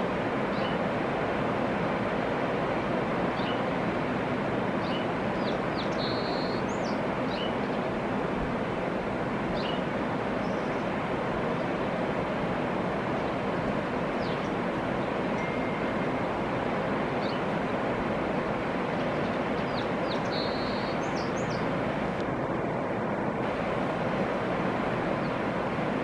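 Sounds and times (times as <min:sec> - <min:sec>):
river rapids rushing: 0:00.0 - 0:26.0
high bird chirps: 0:19.7 - 0:21.6.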